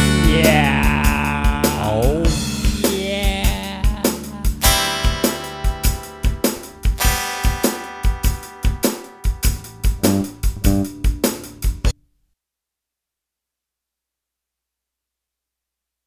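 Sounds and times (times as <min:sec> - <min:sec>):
held instrument chords: 0:00.0 - 0:11.9
drum kit beating: 0:00.0 - 0:12.0.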